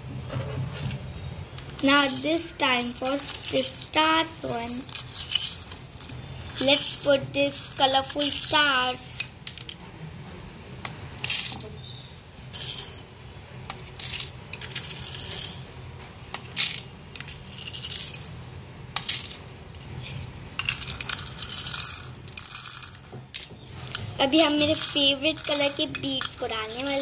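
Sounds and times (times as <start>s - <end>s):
plastic beads clattering: 1.6s - 9.8s, 12.5s - 13.1s, 13.7s - 19.5s, 20.6s - 23.6s, 24.2s - 27.0s.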